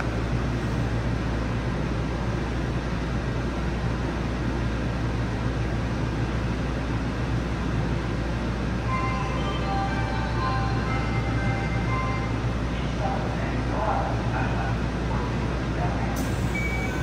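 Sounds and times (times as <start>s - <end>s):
air-conditioning rush: 0.0s - 17.0s
train low hum: 0.0s - 17.0s.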